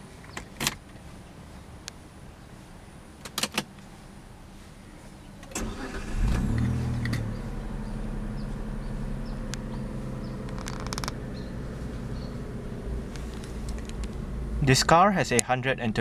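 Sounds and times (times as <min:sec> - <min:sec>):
car engine starting and idling: 0:05.4 - 0:16.0
sharp clicks: 0:10.4 - 0:11.2.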